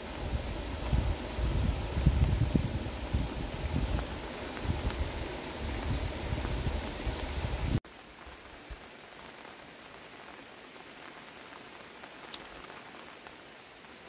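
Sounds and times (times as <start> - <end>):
wind rushing over microphone: 0.0 - 7.8
light rain falling: 0.0 - 14.0
faint water drips: 8.2 - 13.4.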